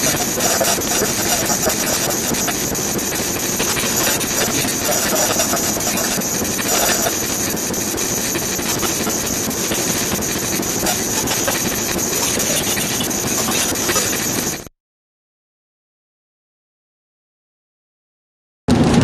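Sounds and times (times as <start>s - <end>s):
faint high whine: 0.0s - 14.7s
steady rushing noise: 0.0s - 14.7s.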